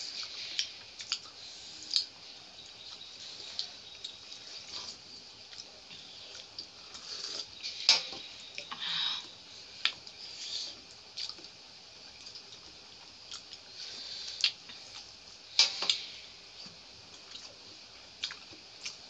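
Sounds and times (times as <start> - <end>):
chewing and wet squishing: 0.1 - 7.6, 9.8 - 15.2, 17.1 - 17.6, 18.2 - 19.0.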